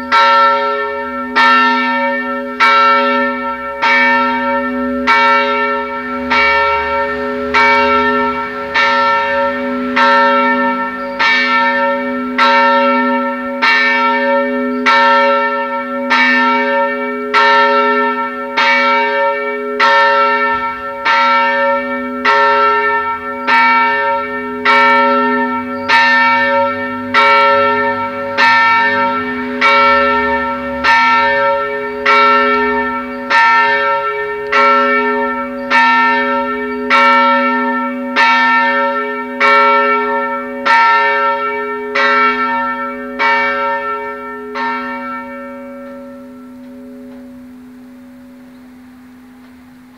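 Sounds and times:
large church bell tolling: 0:00.0 - 0:49.9.

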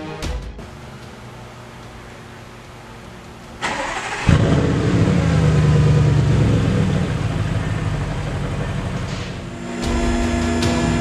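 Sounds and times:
starter motor cranking: 0:03.6 - 0:06.0
car engine revving and idling: 0:03.6 - 0:11.0.

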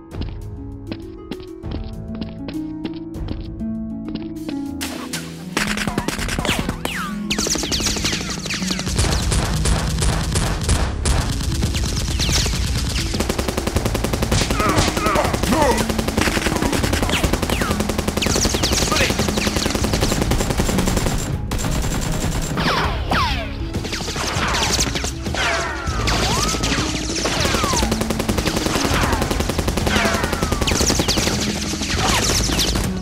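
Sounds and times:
automatic gunfire bursts: 0:06.2 - 0:22.6, 0:26.4 - 0:33.0.

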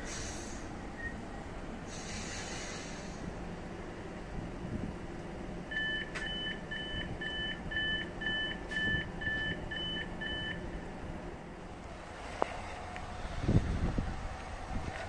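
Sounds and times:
two-tone door warning beeps: 0:05.7 - 0:10.7.

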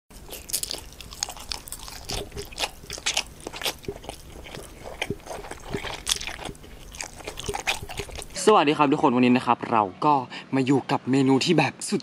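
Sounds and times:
crunching and chewing crispy food: 0:00.1 - 0:08.4.

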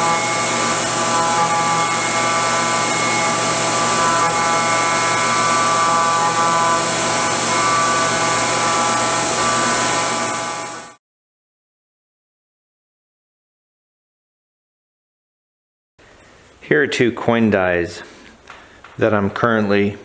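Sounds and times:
metal cutting tones: 0:00.0 - 0:11.0
milling spindle high-pitched whine: 0:00.0 - 0:11.0.

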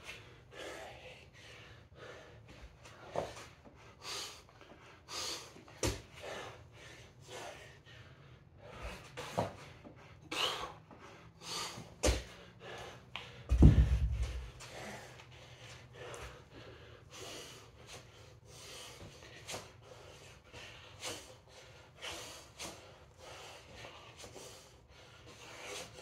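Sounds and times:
man gasping breaths: 0:00.0 - 0:26.0
knocks on gym floor: 0:13.5 - 0:14.4
heavy low thud: 0:13.5 - 0:14.5.

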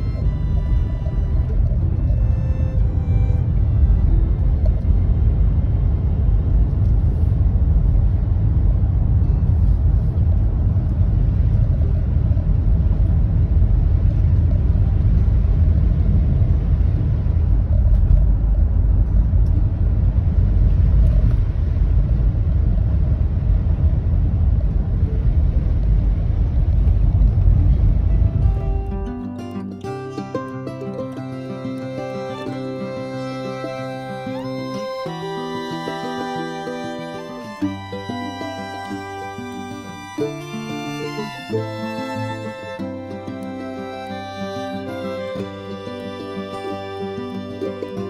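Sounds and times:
tyres on wet road: 0:00.0 - 0:11.5
car engine rumble: 0:00.0 - 0:29.3.

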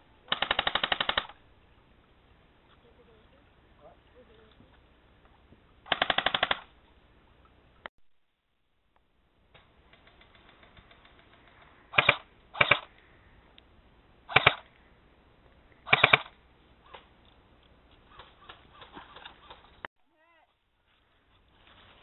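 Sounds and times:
airsoft rifle bursts: 0:00.3 - 0:01.4, 0:05.9 - 0:06.7, 0:10.0 - 0:13.0, 0:14.3 - 0:14.7, 0:15.8 - 0:17.1.

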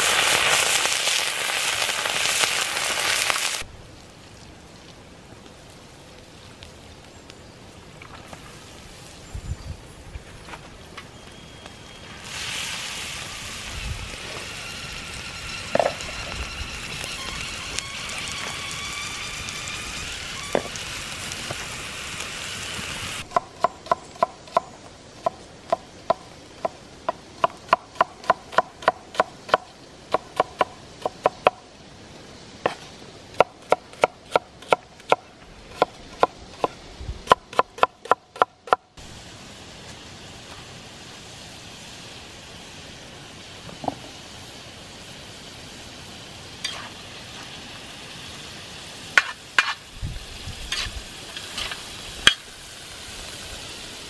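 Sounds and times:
meat sizzling: 0:00.0 - 0:04.4, 0:11.8 - 0:24.0, 0:39.0 - 0:54.0.

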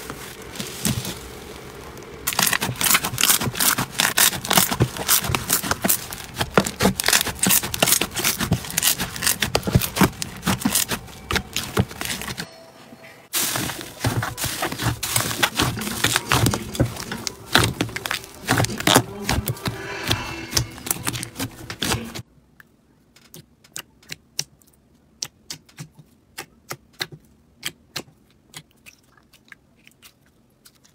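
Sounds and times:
slime crackling and popping: 0:00.1 - 0:12.4, 0:13.4 - 0:19.5.

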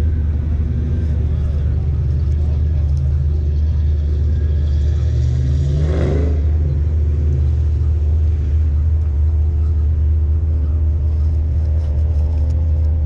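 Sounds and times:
vehicle engine running: 0:00.0 - 0:13.0.

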